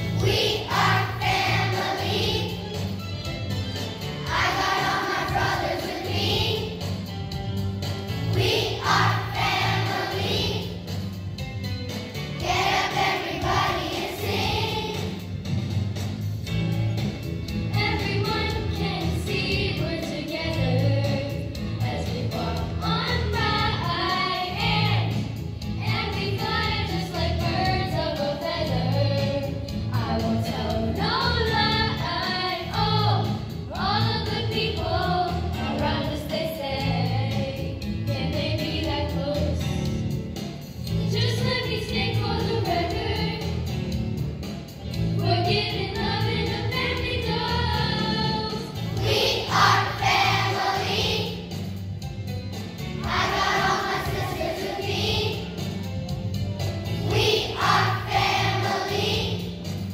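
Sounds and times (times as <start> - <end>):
children's choir singing: 0.0 - 3.0, 4.1 - 7.0, 8.2 - 11.0, 12.4 - 15.3, 17.8 - 37.4, 41.2 - 43.6, 45.4 - 51.7, 53.0 - 55.8, 56.9 - 59.9.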